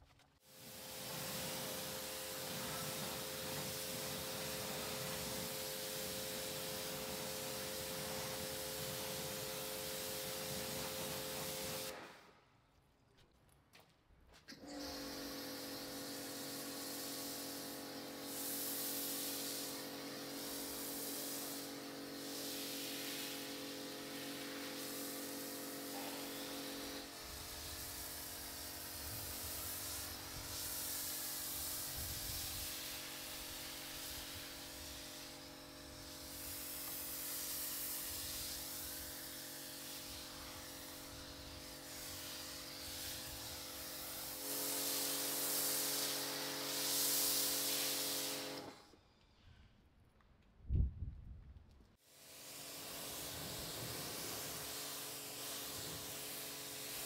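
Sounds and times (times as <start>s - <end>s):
foam lance spraying hiss: 0.4s - 12.3s, 16.2s - 48.8s, 52.0s - 57.0s
pressure washer motor whine: 0.6s - 12.0s, 14.6s - 18.7s.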